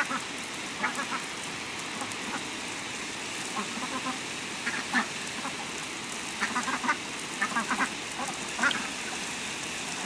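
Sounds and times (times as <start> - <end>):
ducks quacking: 0.0 - 0.2, 0.8 - 1.3, 3.5 - 5.7, 6.4 - 9.0
garden hose spraying water: 0.0 - 10.0.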